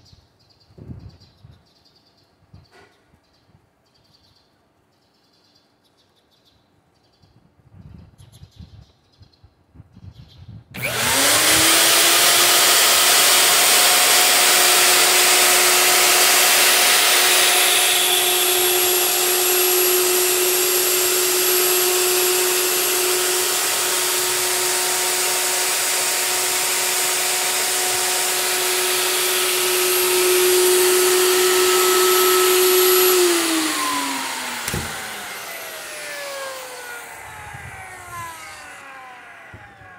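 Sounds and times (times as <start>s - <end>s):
electric router motor whining: 10.8s - 39.9s.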